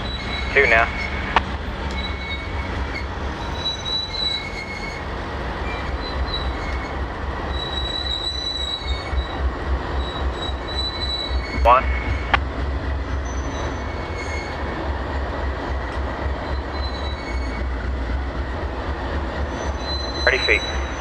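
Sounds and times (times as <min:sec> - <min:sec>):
high wheel squeal: 0:00.0 - 0:12.4, 0:13.0 - 0:21.0
diesel locomotive engine rumble: 0:00.0 - 0:21.0
freight cars rolling: 0:00.0 - 0:21.0.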